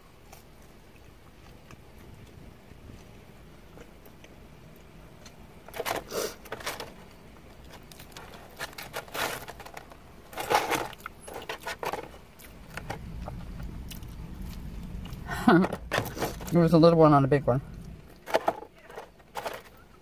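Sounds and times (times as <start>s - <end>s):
food container crinkling: 5.7s - 14.6s, 17.9s - 20.0s.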